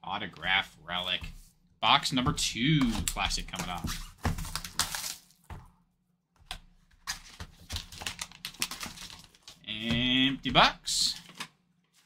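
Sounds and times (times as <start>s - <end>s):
plastic wrap crinkling and tearing: 3.8s - 5.5s, 7.1s - 9.6s.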